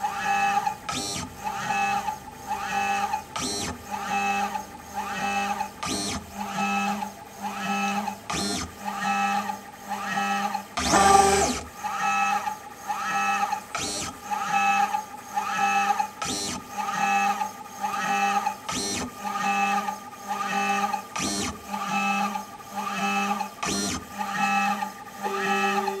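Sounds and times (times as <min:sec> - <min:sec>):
gantry drive motors whining: 0:10.8 - 0:11.7.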